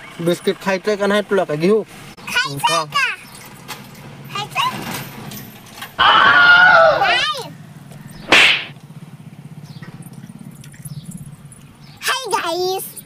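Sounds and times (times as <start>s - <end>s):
child squealing: 6.0s - 7.5s
short sharp hiss: 8.2s - 8.8s.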